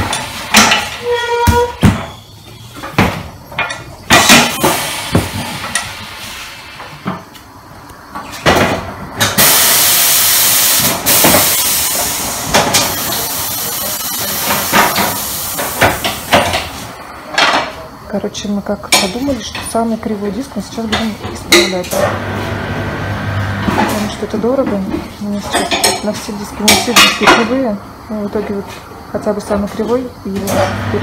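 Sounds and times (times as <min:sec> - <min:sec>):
compressed air hissing: 0:04.4 - 0:06.9, 0:09.4 - 0:16.9.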